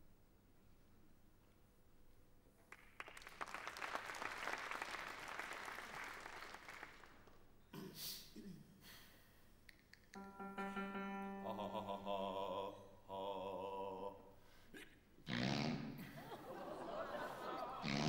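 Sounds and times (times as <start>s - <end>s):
audience applauding: 2.7s - 7.4s
steady held note: 10.2s - 13.5s.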